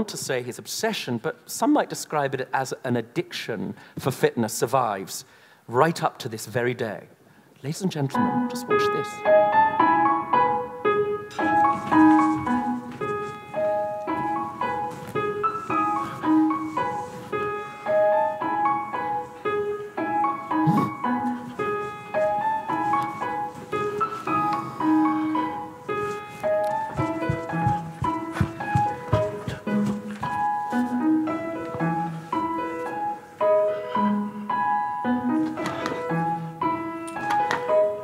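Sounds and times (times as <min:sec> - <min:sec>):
piano music quick notes: 0:08.1 - 0:38.0.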